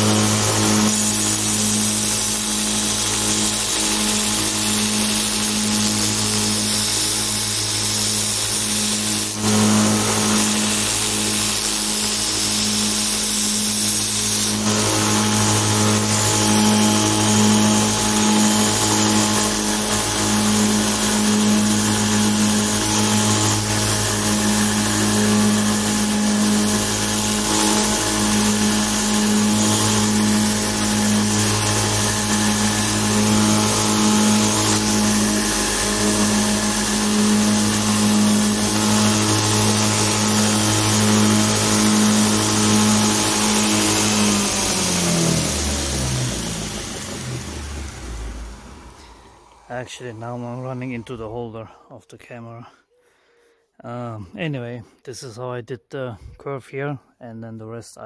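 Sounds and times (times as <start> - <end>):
belt grinding metal sheet: 0.0 - 51.5
motor humming: 0.0 - 51.5.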